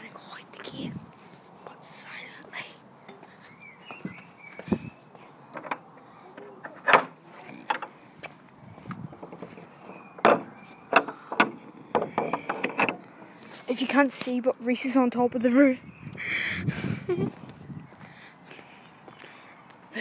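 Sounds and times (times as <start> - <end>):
gate knocks and rattles: 6.6 - 8.0, 9.1 - 13.0.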